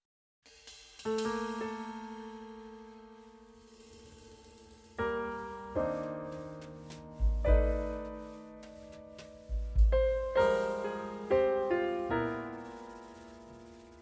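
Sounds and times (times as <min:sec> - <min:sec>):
slow piano chords: 0:01.1 - 0:14.0
deep bass piano note: 0:07.1 - 0:08.4, 0:09.4 - 0:12.0.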